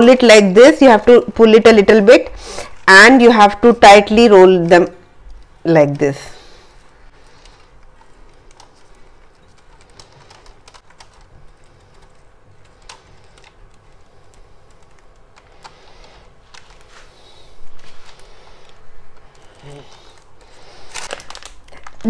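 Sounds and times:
parchment crinkle: 6.4s - 22.0s
baking parchment rustling: 15.0s - 22.0s.

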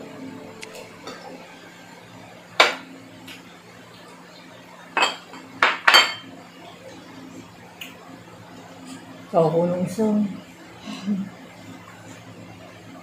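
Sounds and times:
tableware clinking on ceramic plates: 5.0s - 6.3s.

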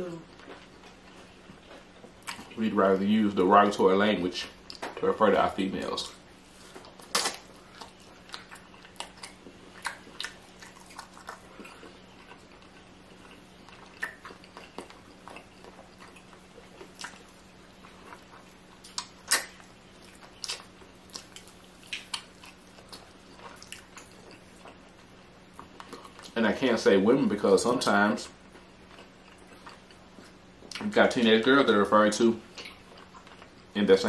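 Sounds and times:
faint steady hum: 0.0s - 34.0s
mouth chewing food: 0.2s - 2.6s, 5.8s - 26.4s, 28.2s - 31.0s, 32.4s - 33.8s.

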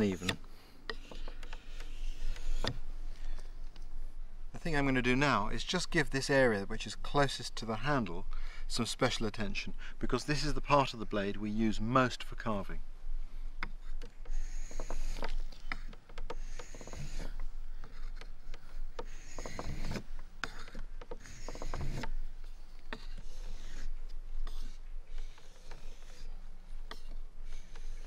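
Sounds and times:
knife scraping on whetstone: 14.3s - 22.2s, 22.9s - 28.0s.

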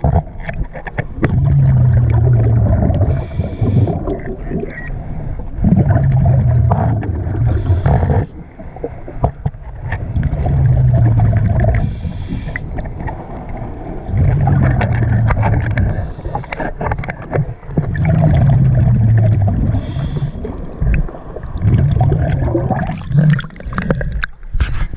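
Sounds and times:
bubbling exhale: 1.2s - 4.4s, 5.6s - 9.0s, 14.1s - 16.8s, 17.9s - 24.3s
regulator inhale hiss: 3.1s - 4.0s, 7.5s - 8.2s, 11.8s - 12.8s, 15.9s - 16.6s, 19.8s - 20.5s.

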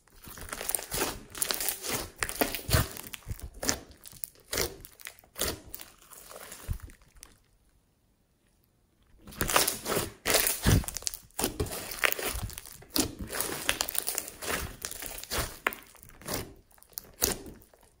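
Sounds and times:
hands squishing crackling slime: 0.0s - 7.6s, 9.2s - 18.0s.

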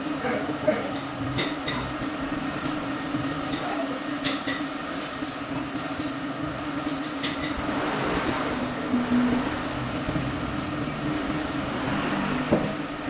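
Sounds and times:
air compressor humming: 5.0s - 13.0s.

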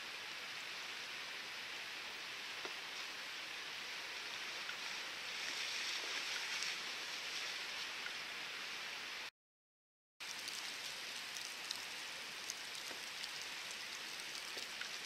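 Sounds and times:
rushing water hiss: 0.0s - 9.3s, 10.2s - 15.0s
kayak splashing: 4.5s - 8.0s.

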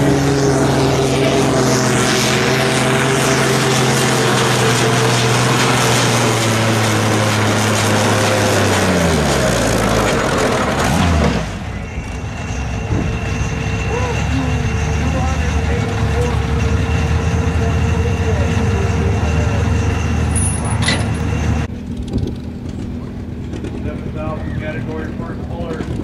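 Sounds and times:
tractor engine running under load: 0.0s - 26.0s.

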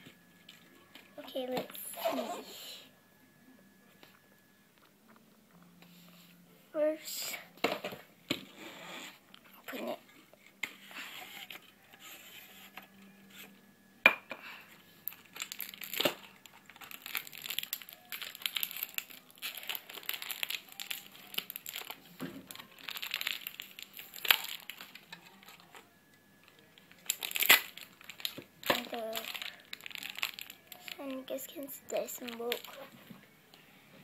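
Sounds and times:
plastic packaging crinkling: 15.0s - 33.0s.

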